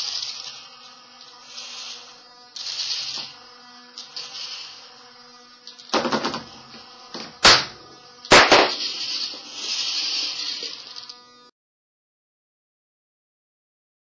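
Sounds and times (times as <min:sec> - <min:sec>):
robot motors whining: 0:00.0 - 0:11.5
rattling knock: 0:05.9 - 0:06.5.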